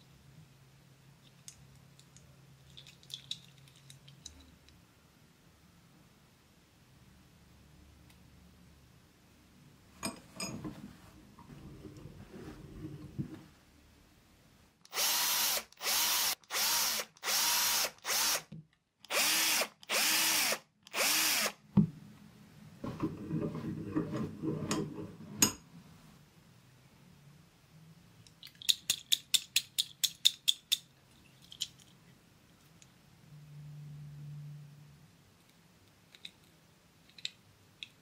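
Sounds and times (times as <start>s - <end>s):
electric drill boring into metal: 14.9s - 18.4s, 19.1s - 21.6s.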